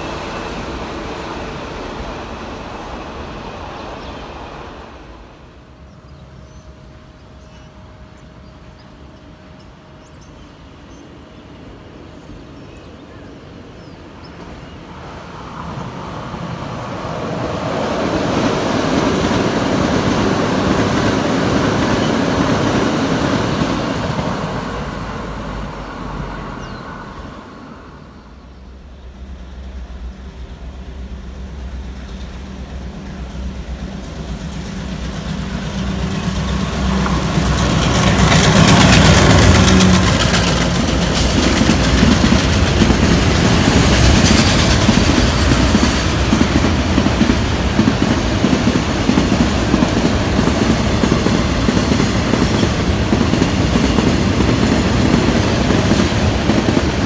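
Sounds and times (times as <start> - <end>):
passing train: 0.0 - 57.0
locomotive engine drone: 27.9 - 57.0.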